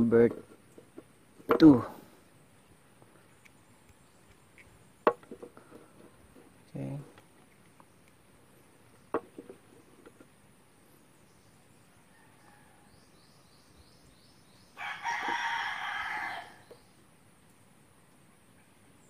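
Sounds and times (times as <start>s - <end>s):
rooster crowing: 12.0s - 13.1s, 14.8s - 16.7s.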